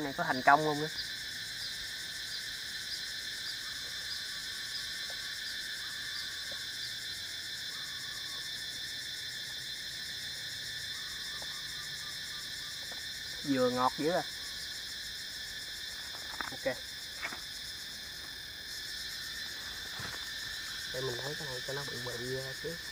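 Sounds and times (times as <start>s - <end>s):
insects droning: 0.0s - 22.9s.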